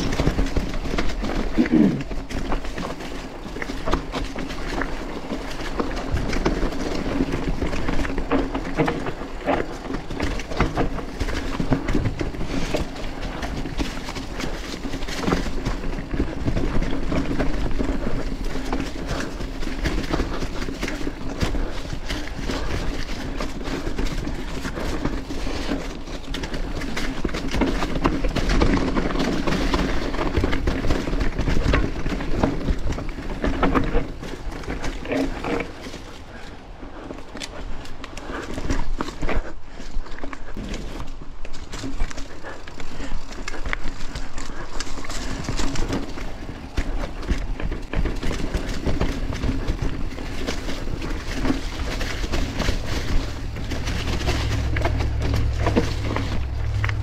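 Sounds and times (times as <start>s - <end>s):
bike rattling and knocking: 0.0s - 57.0s
tyres crunching over leaves: 0.0s - 57.0s
steady low hum: 50.8s - 57.0s.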